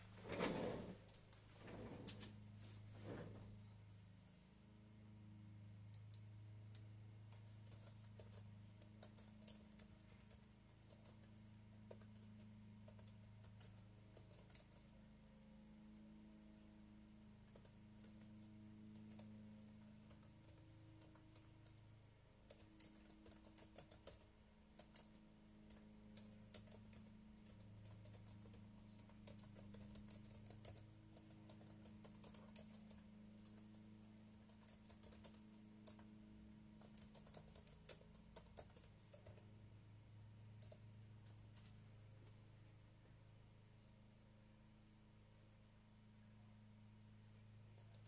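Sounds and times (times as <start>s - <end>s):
low steady hum: 0.0s - 48.0s
typing on computer keyboard: 5.9s - 15.0s, 17.4s - 36.1s, 36.7s - 39.6s, 40.3s - 41.4s, 47.7s - 48.0s.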